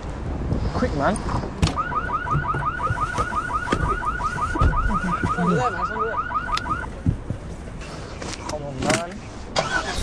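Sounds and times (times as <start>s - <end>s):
car alarm warbling chirp: 1.7s - 6.9s.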